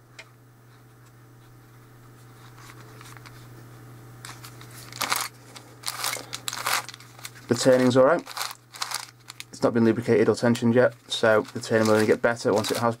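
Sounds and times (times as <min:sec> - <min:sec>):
steady low hum: 0:00.0 - 0:13.0
plastic puzzle scraping and clicking: 0:11.3 - 0:13.0.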